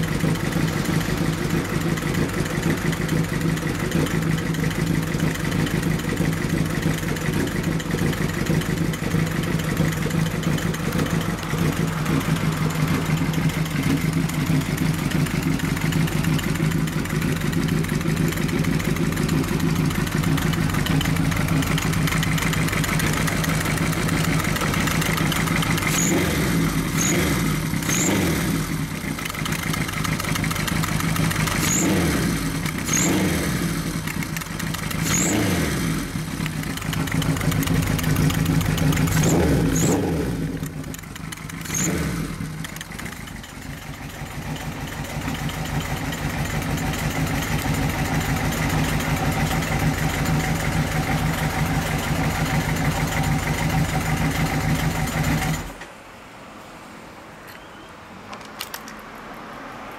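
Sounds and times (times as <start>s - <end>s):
motorcycle engine revving and idling: 0.0s - 55.9s.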